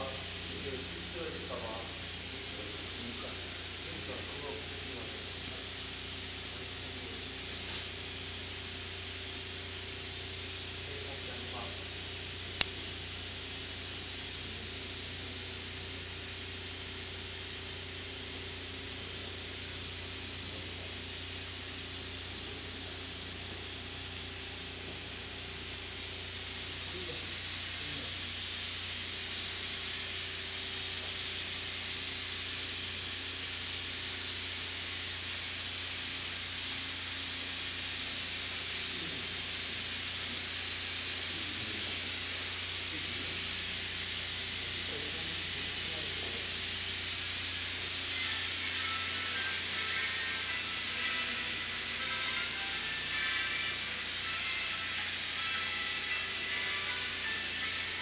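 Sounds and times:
low machinery hum: 0.0s - 32.2s
machinery hiss: 0.0s - 58.0s.

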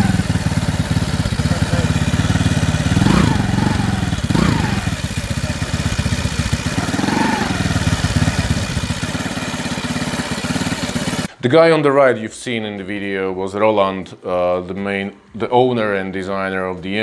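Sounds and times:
paramotor engine running: 0.0s - 11.3s.

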